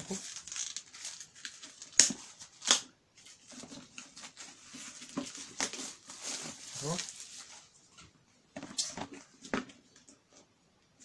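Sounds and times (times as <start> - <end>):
plastic containers rustling: 3.3 - 10.5.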